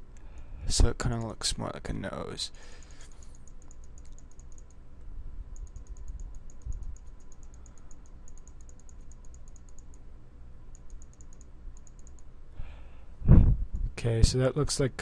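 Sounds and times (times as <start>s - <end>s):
faint low hum: 0.0s - 15.0s
computer mouse clicking: 3.0s - 4.8s, 5.6s - 10.0s, 10.7s - 12.3s.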